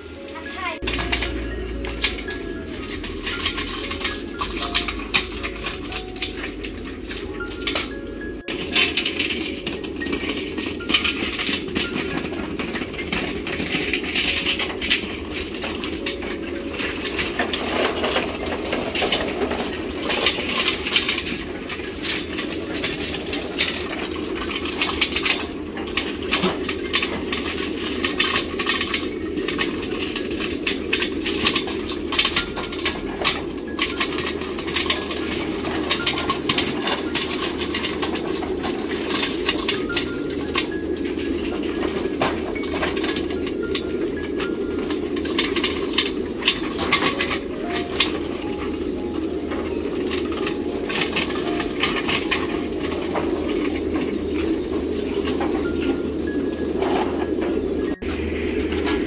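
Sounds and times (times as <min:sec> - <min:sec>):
rolling rumble: 0:00.0 - 0:59.0.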